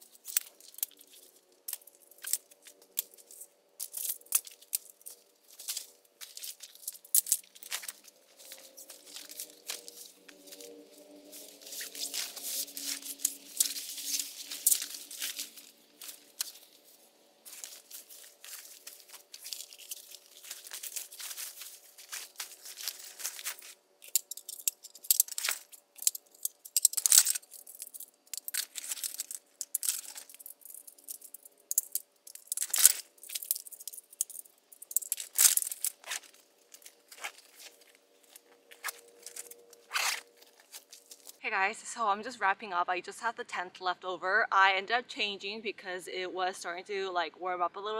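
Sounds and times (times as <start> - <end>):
fabric and plastic bags rustling: 0.0 - 41.4
short ripping sounds: 38.7 - 41.4.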